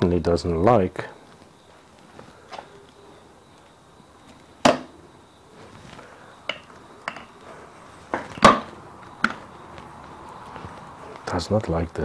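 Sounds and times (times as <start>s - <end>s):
metal clunks and clicks: 6.5s - 7.3s.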